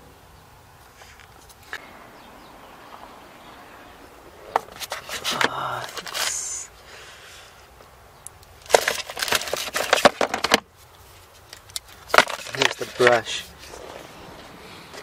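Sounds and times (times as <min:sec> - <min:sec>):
kit contents clicking and scraping: 0:04.4 - 0:06.5, 0:08.3 - 0:15.0.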